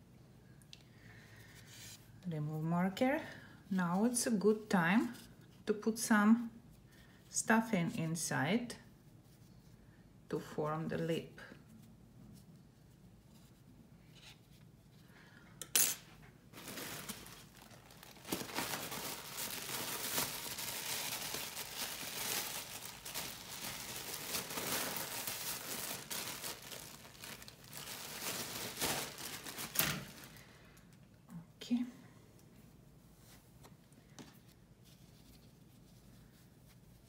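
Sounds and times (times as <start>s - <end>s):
rustling and crinkling bag: 16.5s - 30.9s.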